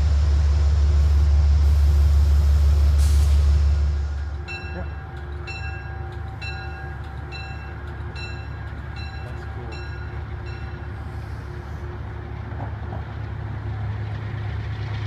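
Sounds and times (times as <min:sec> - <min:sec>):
diesel train engine rumble: 0:00.0 - 0:15.0
train bell ringing: 0:04.1 - 0:11.8.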